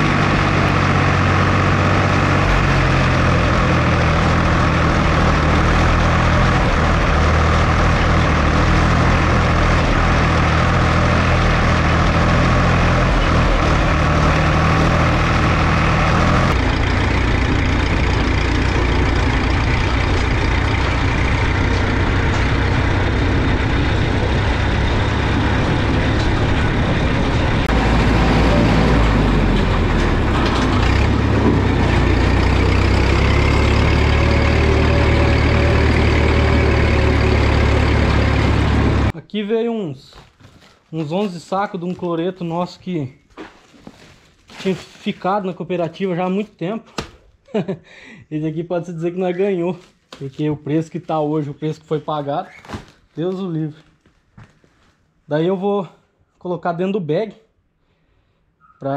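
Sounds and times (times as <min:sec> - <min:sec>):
diesel tractor engine running: 0:00.0 - 0:39.2
distant engine: 0:00.0 - 0:39.2.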